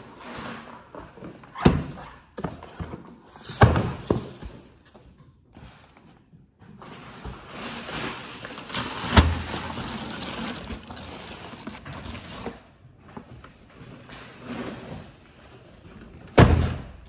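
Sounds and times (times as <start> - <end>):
plastic wrap crinkling: 7.8 - 12.6.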